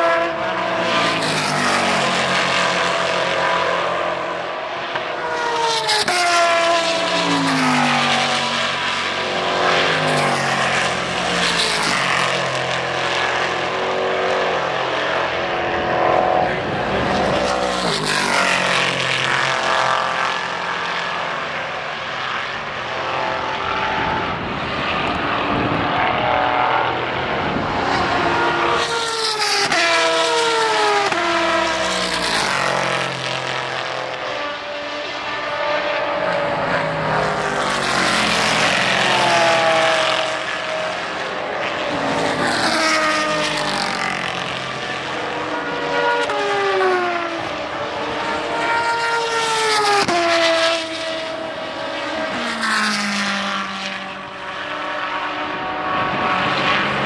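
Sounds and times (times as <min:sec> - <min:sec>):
race cars passing at high revs: 0:00.0 - 0:57.0.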